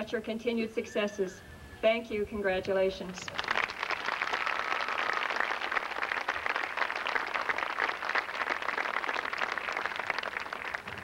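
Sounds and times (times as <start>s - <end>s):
large audience applauding: 3.3s - 11.0s.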